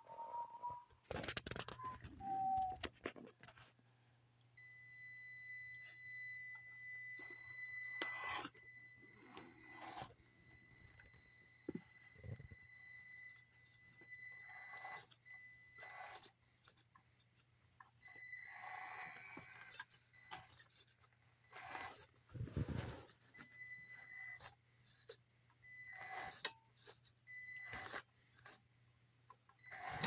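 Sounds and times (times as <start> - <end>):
small electric motor whining: 5.7 - 28.7, 29.6 - 30.0
toy car scraping over board: 9.2 - 10.2, 18.5 - 23.2, 26.0 - 27.0, 27.6 - 28.6, 29.7 - 30.0.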